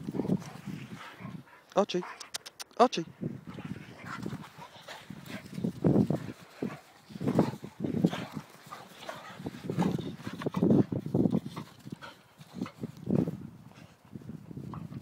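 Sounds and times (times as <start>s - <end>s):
dogs growling: 3.5s - 10.7s.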